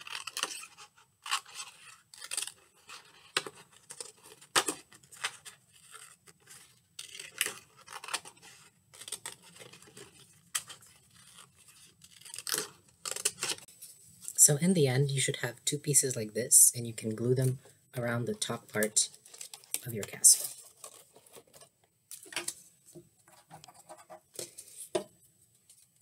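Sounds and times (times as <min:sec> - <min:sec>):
scissors snipping paper: 0:00.0 - 0:13.7.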